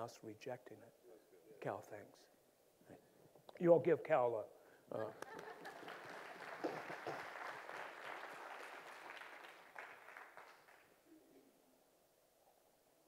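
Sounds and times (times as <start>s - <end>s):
congregation applauding: 5.1s - 11.0s.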